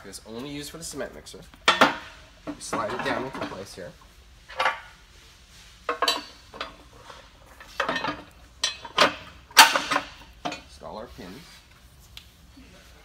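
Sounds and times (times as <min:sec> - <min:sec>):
metal bracket clanking: 0:07.6 - 0:10.7.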